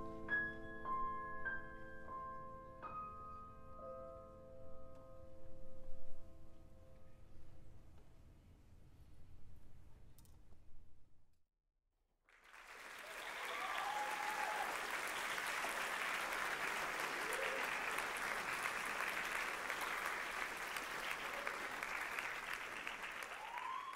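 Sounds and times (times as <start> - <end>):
audience applauding: 12.3 - 23.9.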